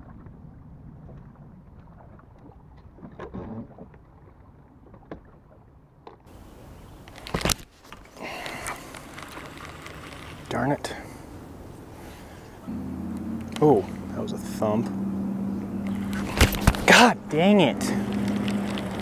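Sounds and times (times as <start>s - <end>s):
light wind: 0.0s - 19.0s
water around boat: 0.0s - 19.0s
fishing tackle clicks and knocks: 7.1s - 10.4s, 15.9s - 16.9s, 18.0s - 19.0s.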